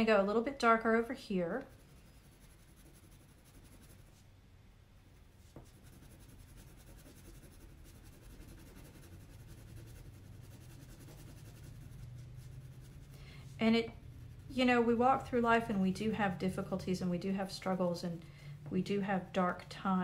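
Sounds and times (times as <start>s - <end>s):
crayon rubbing on paper: 1.5s - 4.2s, 5.4s - 16.8s.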